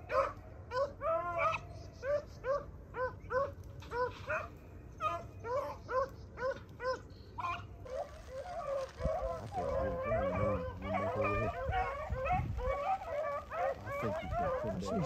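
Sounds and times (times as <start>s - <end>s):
beagles baying: 0.1s - 15.0s.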